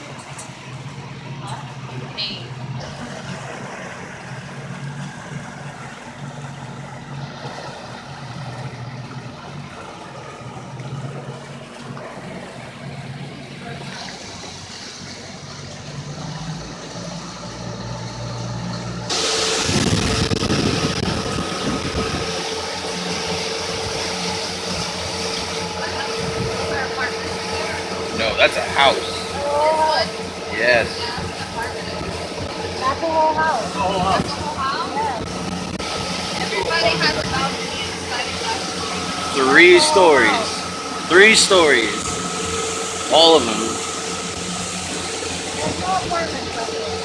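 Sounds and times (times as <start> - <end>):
boat motor running: 0.0 - 47.0
steady higher hum: 0.0 - 47.0.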